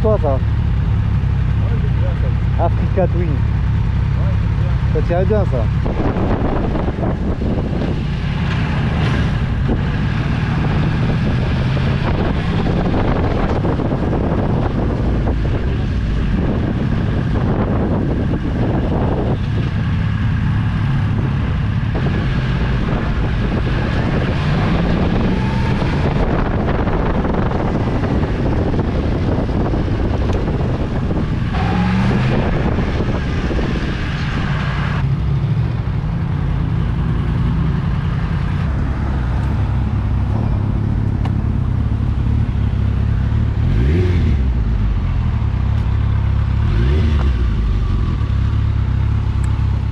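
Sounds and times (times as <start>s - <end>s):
motorcycle engine running: 0.0s - 8.6s, 35.0s - 49.9s
wind noise on microphone: 5.7s - 35.1s.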